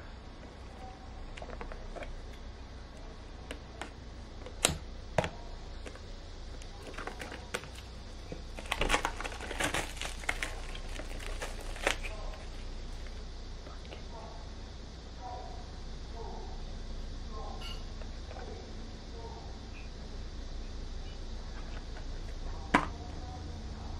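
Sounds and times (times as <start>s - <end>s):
plastic sleeve crinkling: 6.6s - 13.2s.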